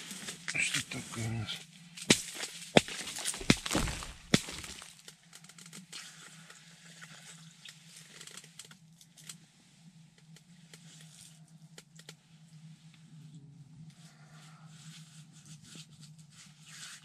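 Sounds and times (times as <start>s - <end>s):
steady low hum: 0.0s - 5.3s, 8.8s - 16.3s
ice slush clicks and crunches: 2.1s - 5.1s.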